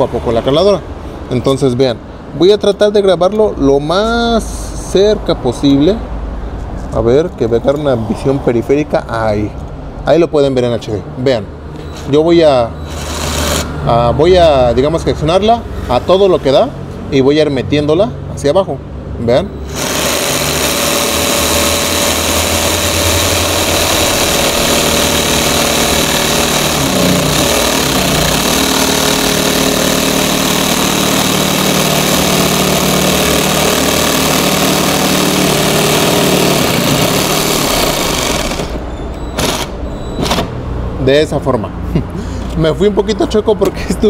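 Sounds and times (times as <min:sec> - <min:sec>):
jigsaw cutting board: 0:12.9 - 0:13.7, 0:19.7 - 0:38.8, 0:39.4 - 0:40.4.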